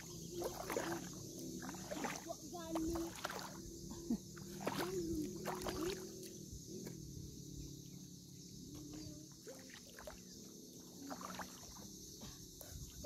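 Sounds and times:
seawater sloshing from wading: 0.0 - 6.4, 8.8 - 12.4.

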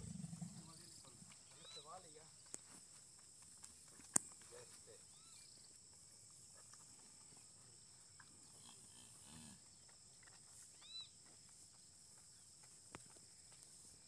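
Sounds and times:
faint animal calls: 0.0 - 2.2, 5.0 - 5.6, 10.5 - 11.2
insect trill: 0.0 - 14.0.

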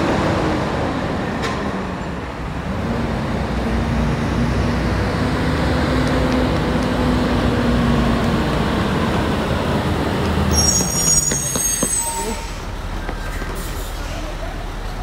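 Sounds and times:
diesel engine droning: 0.0 - 11.7
high squeal: 10.5 - 12.7.

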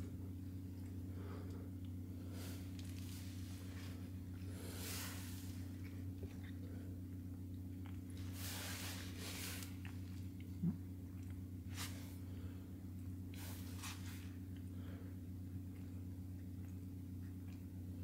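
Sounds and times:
soft brushing noises: 2.3 - 6.6, 8.1 - 10.3, 11.6 - 12.2, 13.3 - 14.5.

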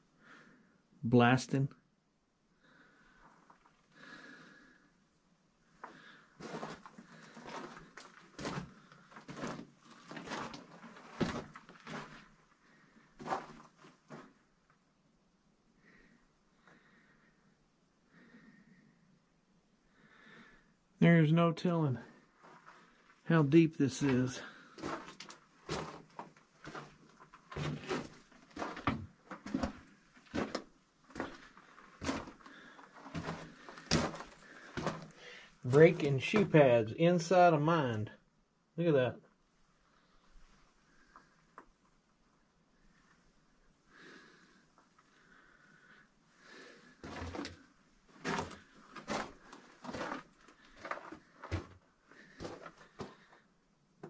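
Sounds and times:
footsteps on gravel: 6.4 - 12.2, 24.5 - 30.6, 31.2 - 36.5, 48.2 - 53.1.

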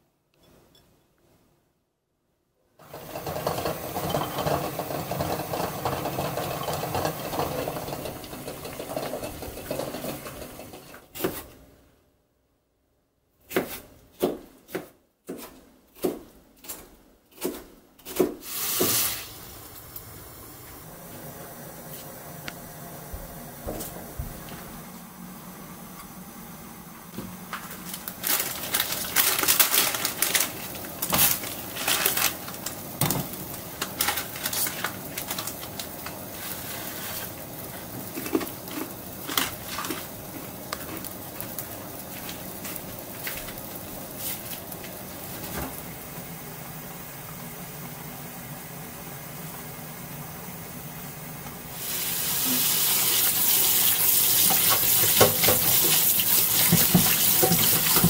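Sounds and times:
tap running hard: 2.8 - 10.8, 53.1 - 58.0
kitchen clicks and knocks: 3.0 - 11.5, 54.4 - 56.0, 56.6 - 58.0
noodles rubbed in metal strainer: 34.2 - 43.0.

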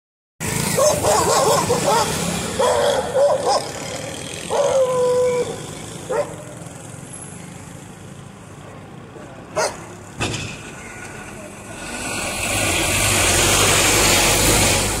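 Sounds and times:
motorcycle passing: 0.4 - 8.7, 11.1 - 15.0
road traffic: 0.4 - 15.0
dogs barking: 0.7 - 6.7, 9.5 - 9.9.

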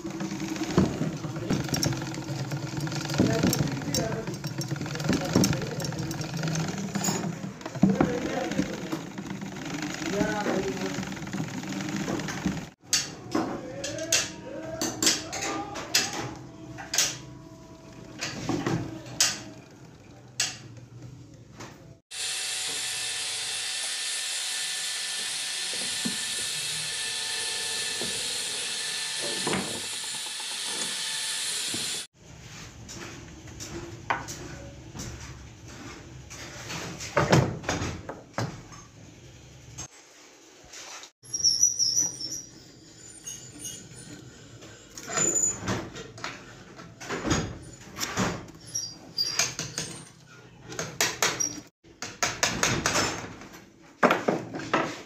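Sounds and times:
sewing machine clicks and rattles: 0.0 - 12.9.

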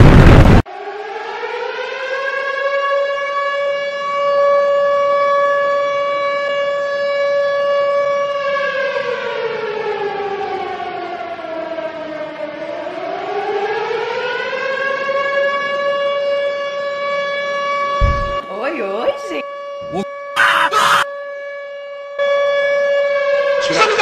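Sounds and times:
loud blast: 0.0 - 0.6, 18.0 - 18.5.

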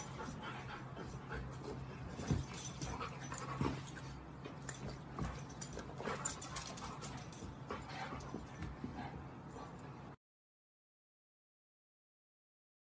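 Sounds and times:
dog panting: 0.0 - 4.2, 4.8 - 10.1.

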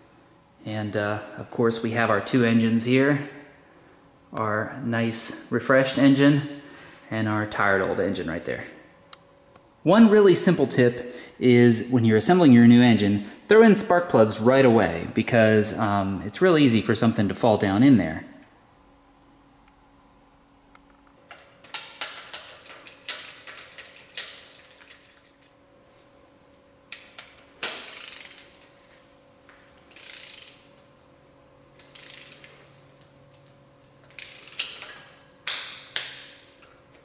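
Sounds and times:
socket ratchet clicking: 26.9 - 28.6, 29.9 - 30.7, 31.8 - 32.6, 34.1 - 36.2.

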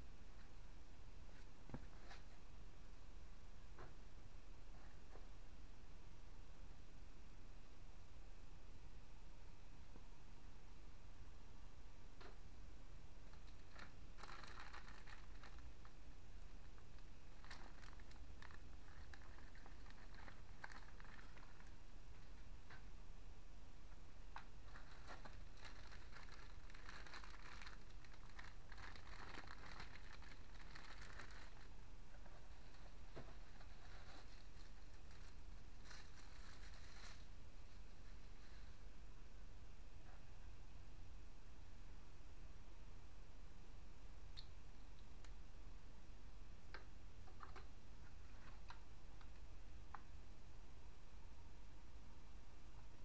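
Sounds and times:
low steady hum: 0.0 - 53.0
plastic bag crinkling: 13.3 - 16.0, 16.7 - 22.3, 24.6 - 37.3.

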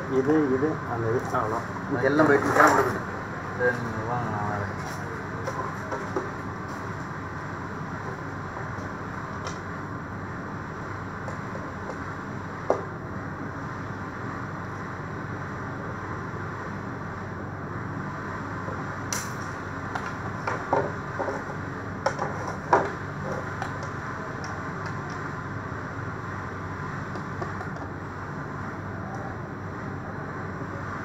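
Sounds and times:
steady background hum: 0.0 - 31.0.

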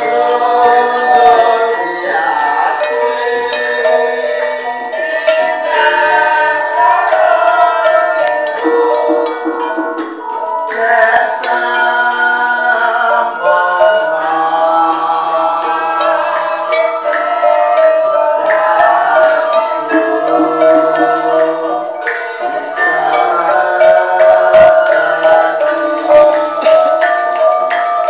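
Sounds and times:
gamelan ensemble playing: 0.0 - 28.0
sharp drum strokes: 8.6 - 11.4.

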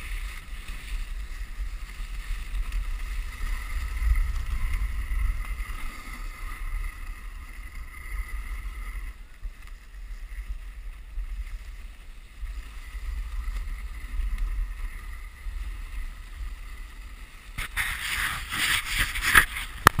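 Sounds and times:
sled runners hissing over snow: 0.0 - 20.0
loud scraping rush: 17.6 - 20.0.

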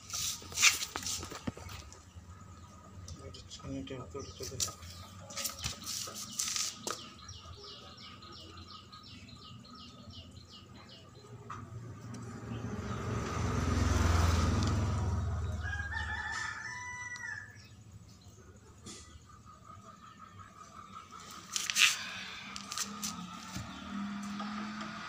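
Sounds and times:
motor vehicle passing: 0.0 - 3.6, 11.2 - 17.8, 20.6 - 25.0
rooster crowing: 15.4 - 17.8.

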